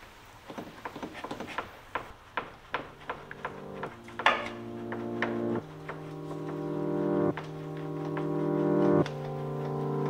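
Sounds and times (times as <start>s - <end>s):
low droning background music: 2.9s - 10.0s.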